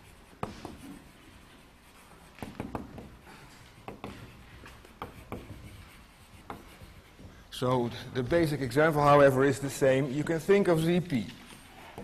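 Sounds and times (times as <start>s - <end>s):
chalk tapping and scraping on blackboard: 0.0s - 7.6s, 10.6s - 12.0s.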